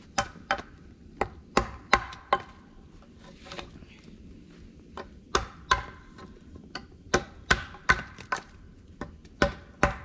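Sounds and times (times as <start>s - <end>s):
hatchet striking wooden pole: 0.1s - 2.6s, 5.0s - 10.0s.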